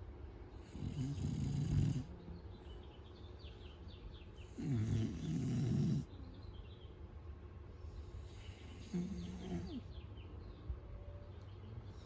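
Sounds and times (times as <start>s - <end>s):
dog snoring: 0.6s - 2.1s, 4.5s - 6.1s, 8.2s - 9.9s.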